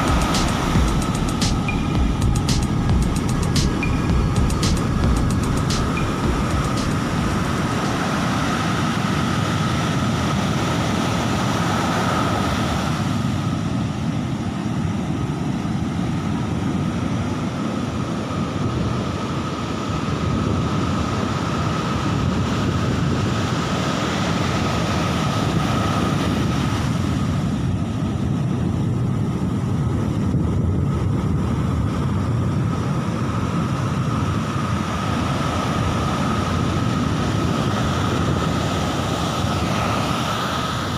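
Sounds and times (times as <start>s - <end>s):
faint steady high tone: 0.0s - 8.1s
wind rumbling on microphone: 0.0s - 40.9s
surf breaking on beach: 5.8s - 40.9s.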